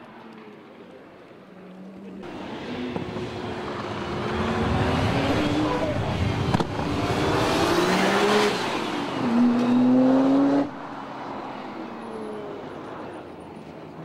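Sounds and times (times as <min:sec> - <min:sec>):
car engine accelerating hard: 0:02.2 - 0:11.1.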